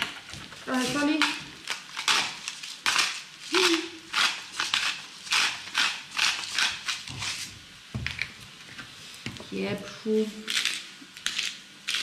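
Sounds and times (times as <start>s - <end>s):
salt grinder crunching: 0.7s - 7.4s, 10.5s - 12.0s.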